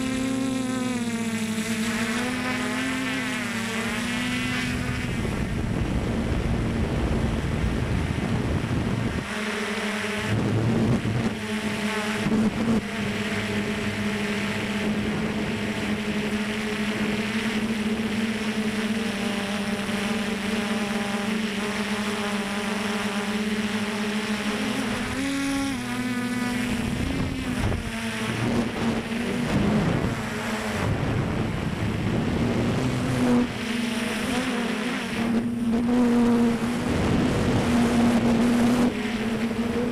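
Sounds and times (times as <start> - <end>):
drone motors humming: 0.0 - 39.9
wind noise on microphone: 3.9 - 18.4, 24.9 - 39.9.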